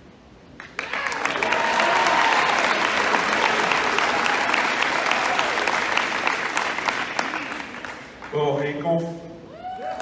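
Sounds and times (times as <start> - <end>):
crowd applauding: 0.6 - 8.7.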